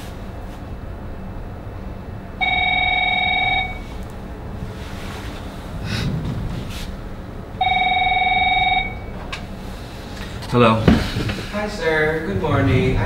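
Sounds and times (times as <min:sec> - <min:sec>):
telephone ringing: 0:02.4 - 0:03.9, 0:07.6 - 0:09.2.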